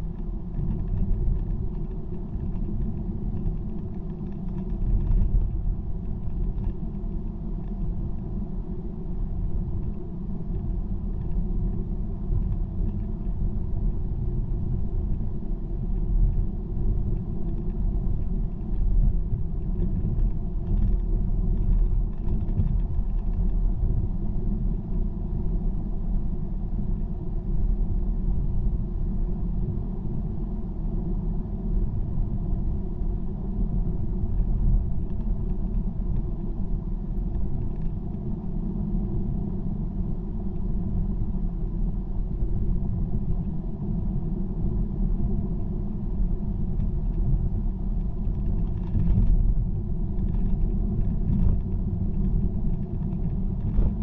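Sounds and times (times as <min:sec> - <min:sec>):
car tyre and road noise: 0:00.0 - 0:54.0.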